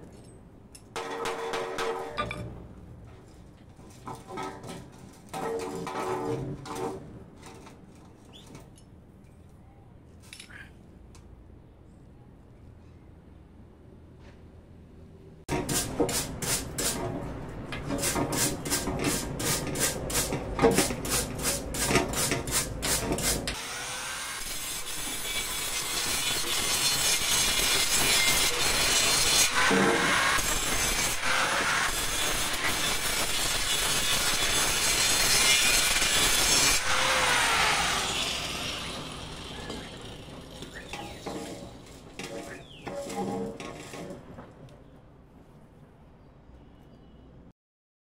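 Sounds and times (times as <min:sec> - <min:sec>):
wire brush scrubbing metal: 0:17.8 - 0:23.6, 0:24.4 - 0:44.2
angle grinder grinding: 0:22.2 - 0:43.9.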